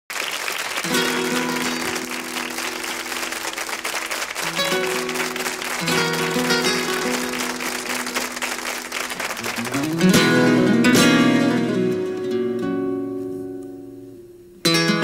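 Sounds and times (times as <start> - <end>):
audience applause: 0.1 - 10.8
live band playing chords: 0.9 - 12.3.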